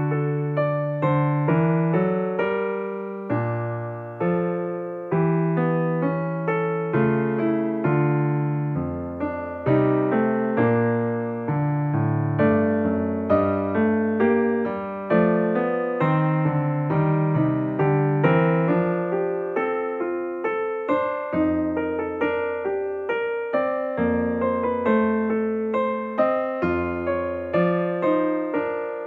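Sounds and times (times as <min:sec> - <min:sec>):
calm piano music: 0:00.0 - 0:29.0.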